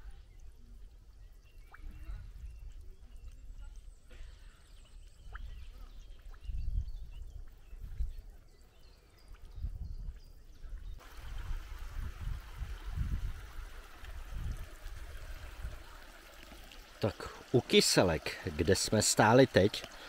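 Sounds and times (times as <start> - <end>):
water trickling: 0.0 - 4.0, 4.8 - 20.0
babble of running water: 11.0 - 20.0.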